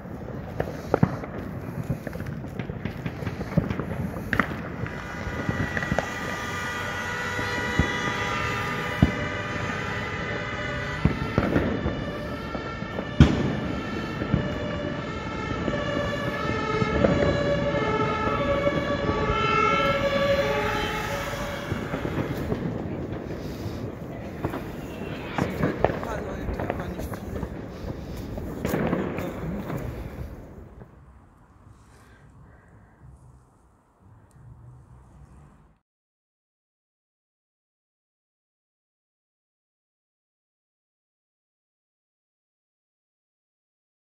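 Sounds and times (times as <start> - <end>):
firecrackers banging: 0.0 - 32.2
steady crackle: 0.0 - 35.6
two-note siren: 4.8 - 22.9.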